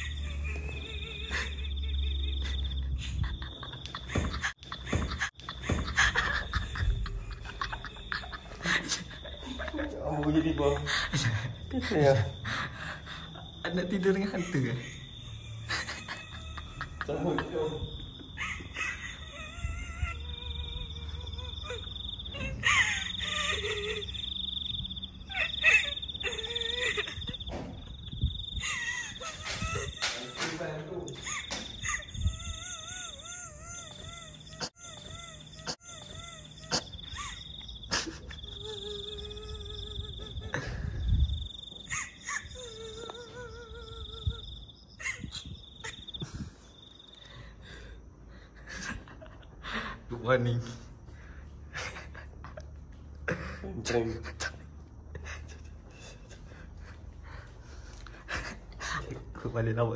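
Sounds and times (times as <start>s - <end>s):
high cricket-like trill: 0.0s - 59.9s.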